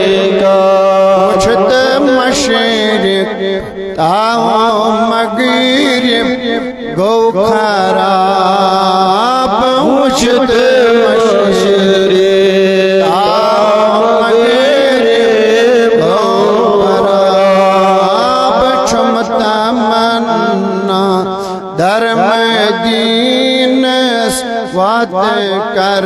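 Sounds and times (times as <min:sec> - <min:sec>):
man chanting over public address: 0:00.0 - 0:26.0.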